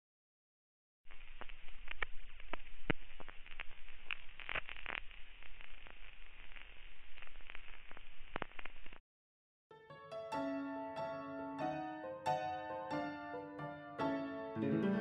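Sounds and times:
film clicks and pops: 1.1 - 9.0
film hiss: 1.1 - 9.0.

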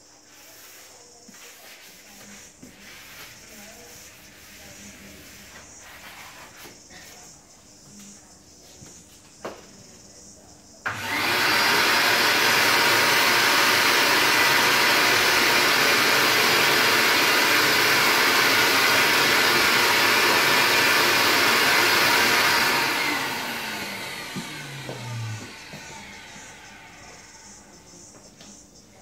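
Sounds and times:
shop vacuum running: 10.8 - 27.8
vacuum motor winding down: 10.9 - 27.6.

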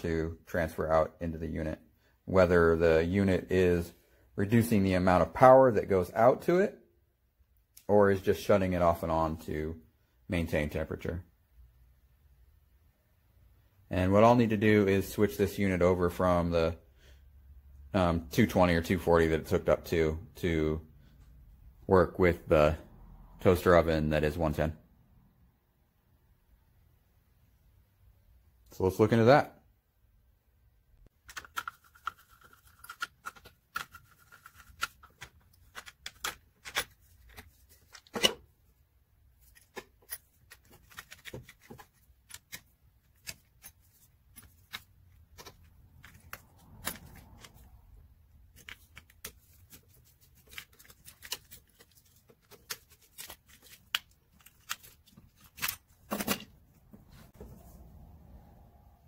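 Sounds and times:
hands handling plastic plug: 31.2 - 38.4, 39.4 - 47.7, 48.4 - 57.5.

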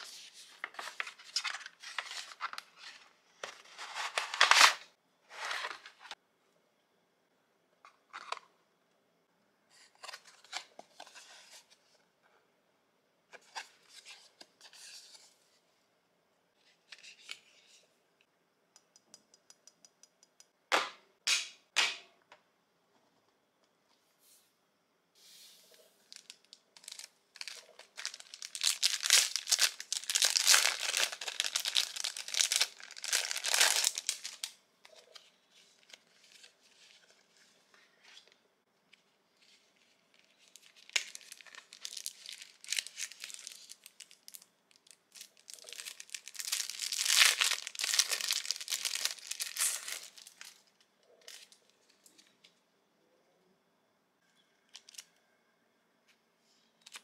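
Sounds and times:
plastic packaging crinkling: 26.1 - 35.1, 40.1 - 52.2.

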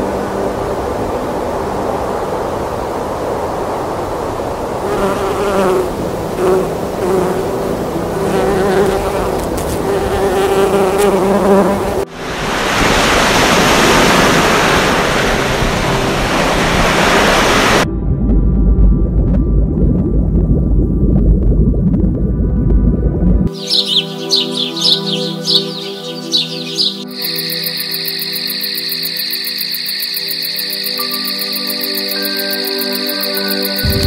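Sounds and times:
bees buzzing: 4.8 - 12.1, 23.5 - 34.0
loud steady rushing noise: 12.1 - 17.9, 33.8 - 34.0.

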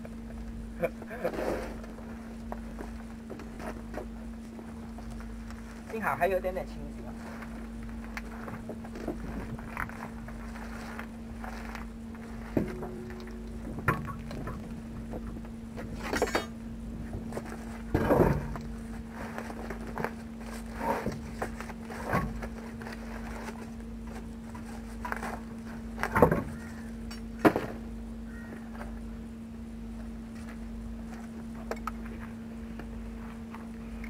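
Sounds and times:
steady low hum: 0.0 - 34.0
steel bar clanking on truck wheel: 12.5 - 16.6.

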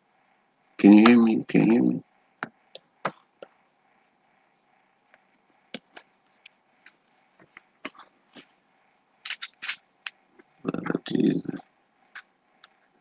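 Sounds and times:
faint irregular clicks and crackles: 5.0 - 8.6, 11.6 - 13.0.

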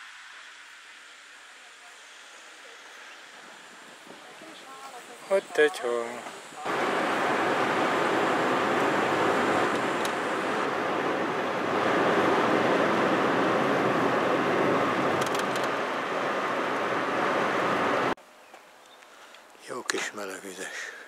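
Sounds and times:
road and wind noise inside car: 5.5 - 18.2.

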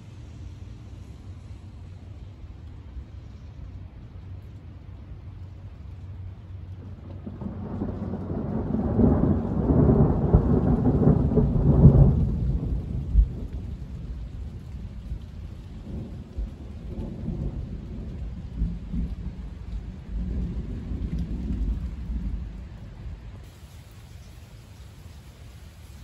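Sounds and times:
rolling thunder: 6.8 - 23.7.

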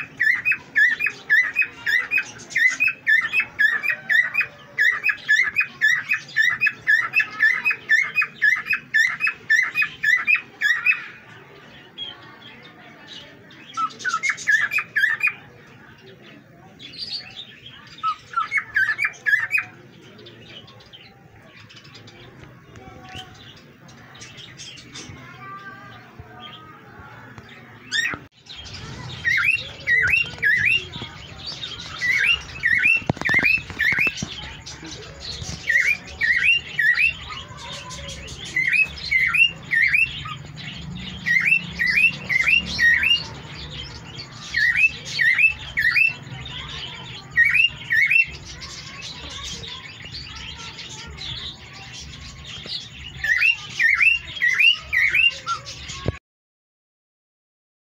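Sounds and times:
cockatiel chirping: 27.9 - 34.4, 35.4 - 40.4, 41.3 - 43.3, 44.4 - 49.0.

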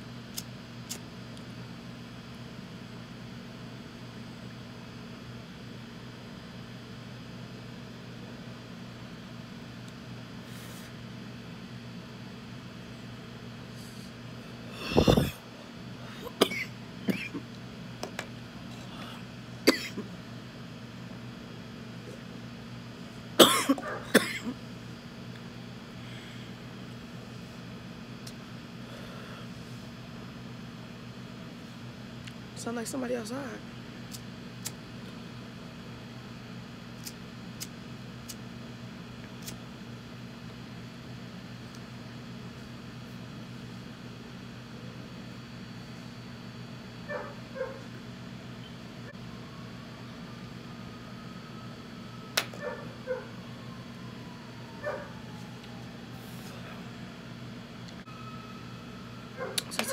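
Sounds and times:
steady low hum: 0.0 - 59.9
person coughing hard: 14.8 - 15.4, 16.1 - 17.5, 19.6 - 20.1, 23.4 - 24.6.

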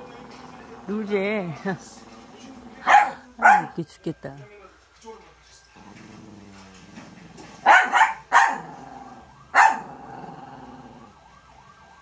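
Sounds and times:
small dog growling: 0.0 - 3.6, 5.8 - 7.5, 8.5 - 11.1
dog barking sharply: 2.9 - 3.8, 7.6 - 8.6, 9.6 - 9.9.

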